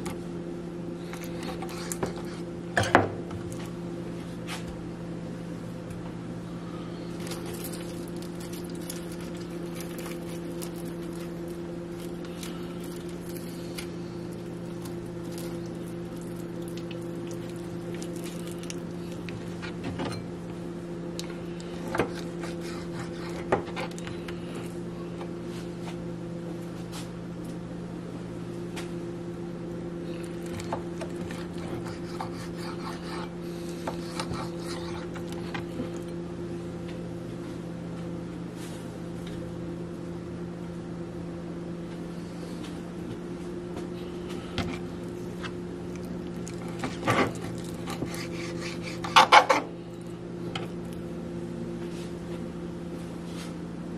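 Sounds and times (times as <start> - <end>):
steady hum: 0.0 - 53.9
knife slicing raw meat: 31.3 - 35.5, 47.6 - 49.6.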